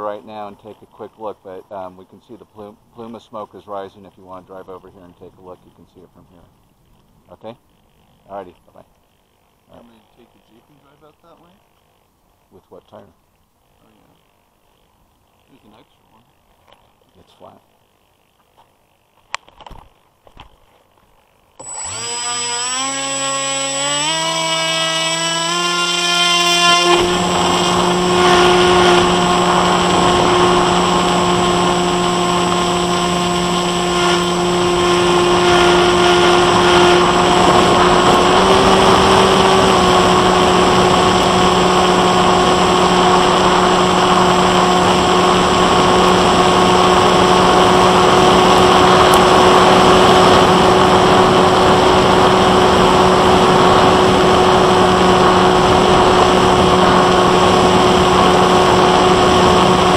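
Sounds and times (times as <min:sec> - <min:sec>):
electric motor buzzing: 0:21.2 - 0:59.9.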